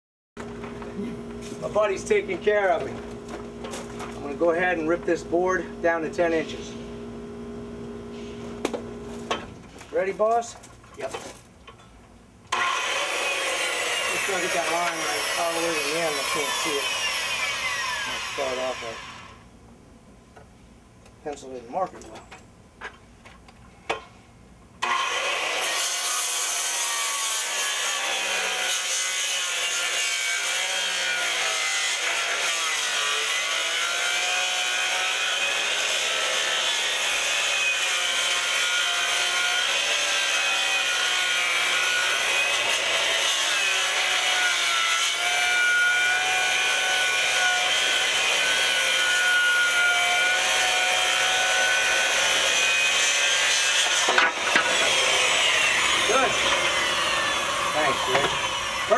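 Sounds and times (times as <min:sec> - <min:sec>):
circular saw cutting wood: 0:12.5 - 0:19.4, 0:24.8 - 0:58.9.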